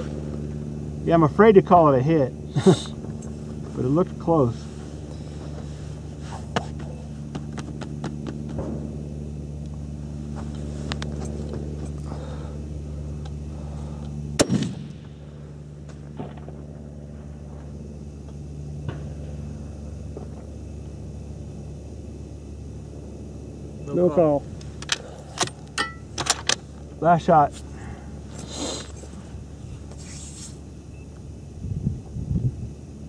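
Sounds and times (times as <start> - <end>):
steady low hum: 0.0 - 33.0
rifle shot with echo: 14.4 - 15.1.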